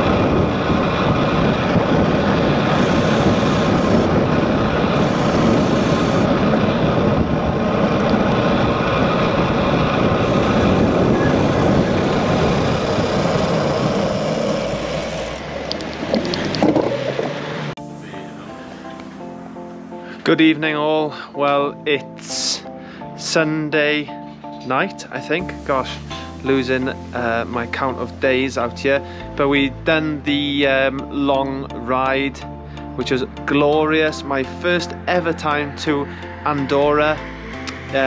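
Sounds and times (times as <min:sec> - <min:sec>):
wind buffeting microphone: 0:00.0 - 0:18.4.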